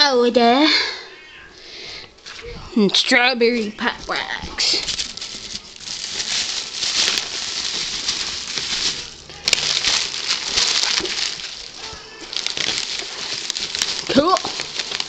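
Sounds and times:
bubble wrap crinkling: 3.5 - 15.0.

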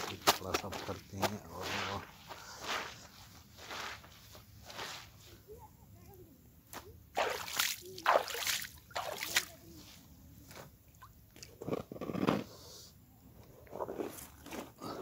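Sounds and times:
water splashing and sloshing: 7.1 - 10.0.

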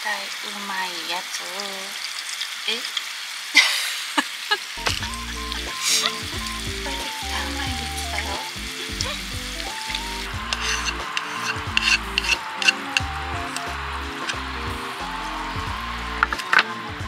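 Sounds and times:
frying pan sizzling: 0.0 - 17.0
background music: 4.8 - 17.0.

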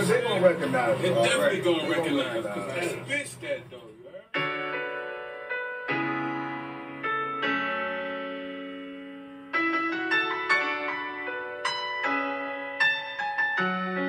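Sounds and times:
piano chords ringing: 4.3 - 14.0.

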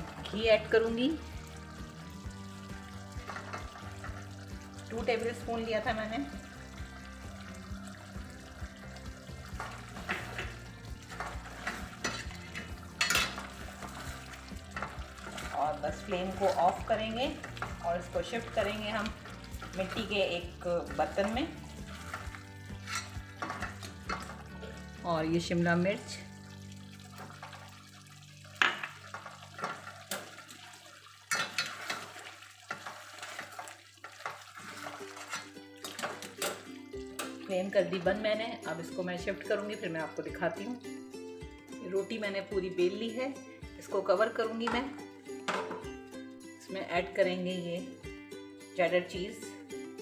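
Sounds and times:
gravy sizzling: 0.0 - 42.4
spatula scraping a steel pot: 9.5 - 24.4, 31.3 - 36.6.

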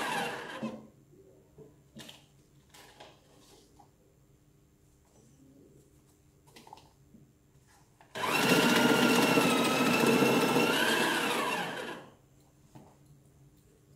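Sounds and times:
machine motor whining: 8.2 - 12.0.

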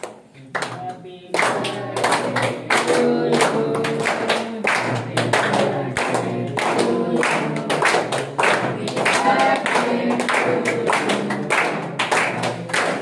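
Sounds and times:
hands clapping in time: 0.0 - 13.0
group singing: 0.4 - 13.0.

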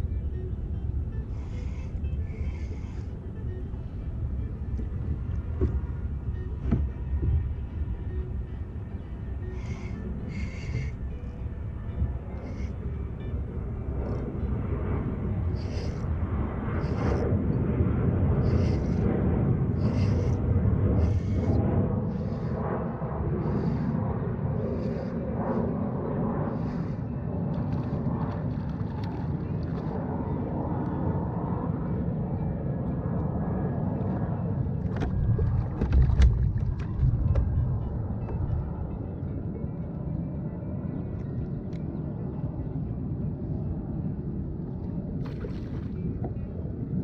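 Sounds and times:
low rumble: 0.0 - 47.0
wind buffeting microphone: 0.0 - 47.0
fish splashing and thrashing: 34.9 - 37.6.

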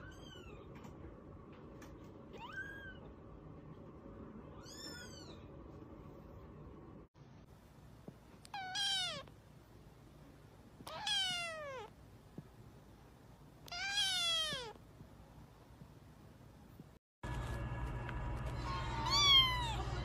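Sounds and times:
kitten meowing: 8.4 - 9.3, 10.8 - 11.9, 13.6 - 14.8, 19.0 - 19.9.

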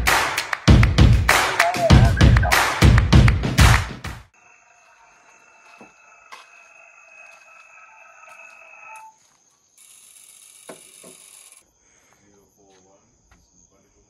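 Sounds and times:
crickets chirping: 4.3 - 14.0.

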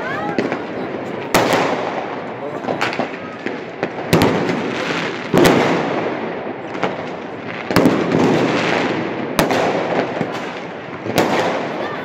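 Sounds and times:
firework crackling: 0.0 - 12.0.

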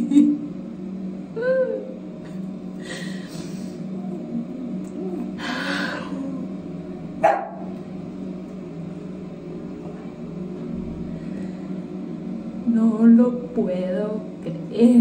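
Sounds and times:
woman sobbing: 1.4 - 1.8.

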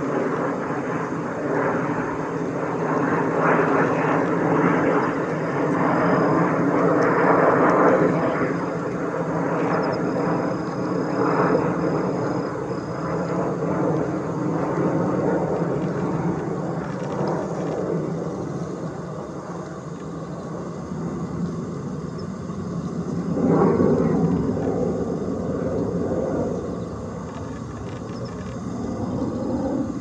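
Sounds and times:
distant engine drone: 0.0 - 30.0.

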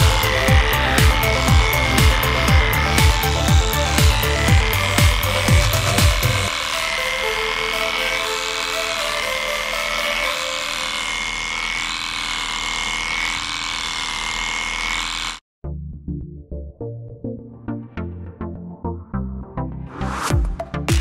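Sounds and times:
cattle clipper whining: 0.0 - 15.4
hiss of cutting hair: 0.0 - 15.4.

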